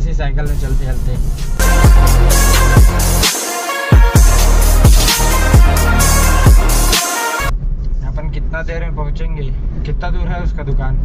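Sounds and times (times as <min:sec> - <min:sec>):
deep bass hits: 0:00.5 - 0:07.5
electronic dance music: 0:01.4 - 0:07.5.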